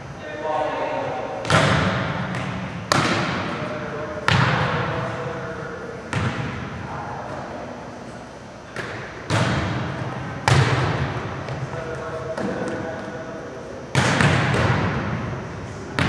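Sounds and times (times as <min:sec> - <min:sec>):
volleyball hits echoing: 0:01.3 - 0:07.4, 0:08.7 - 0:13.2, 0:13.9 - 0:16.0.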